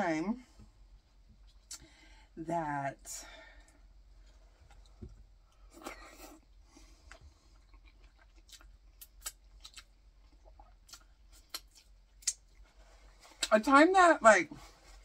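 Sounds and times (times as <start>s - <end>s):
chewing: 6.2s - 12.7s.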